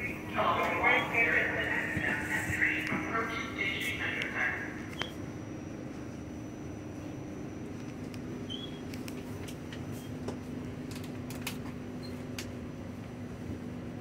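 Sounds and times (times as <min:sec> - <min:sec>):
faint high whine: 0:00.0 - 0:09.1
subway car hum: 0:00.0 - 0:14.0.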